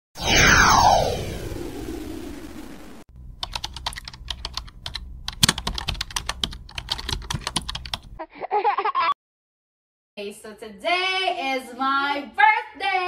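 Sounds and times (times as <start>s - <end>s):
keyboard key clicks: 3.4s - 8.0s.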